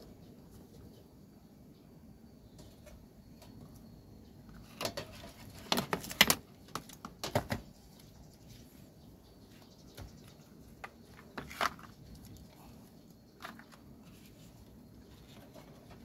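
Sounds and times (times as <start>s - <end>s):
plastic parts clicking and clattering: 4.6s - 7.7s, 10.8s - 12.6s.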